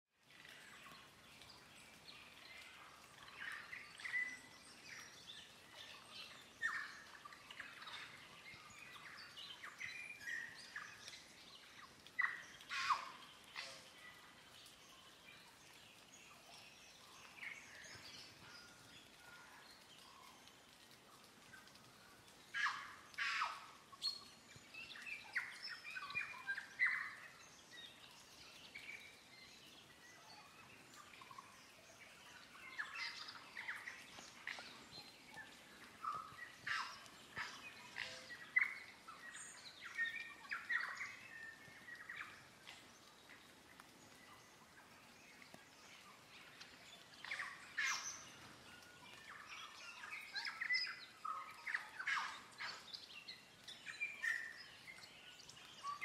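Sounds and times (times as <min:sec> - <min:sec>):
faint background hiss: 0:00.2 - 0:56.0
birds chirping: 0:00.4 - 0:56.0.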